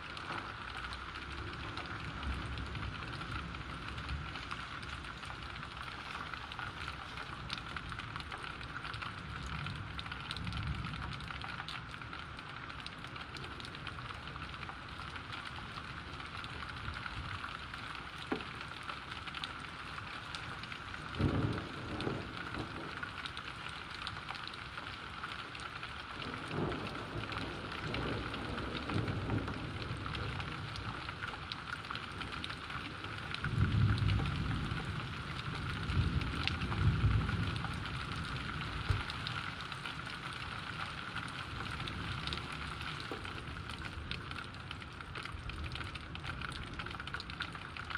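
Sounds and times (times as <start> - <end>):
steady rain falling: 0.0 - 47.9
thunder rumbling: 21.0 - 23.0.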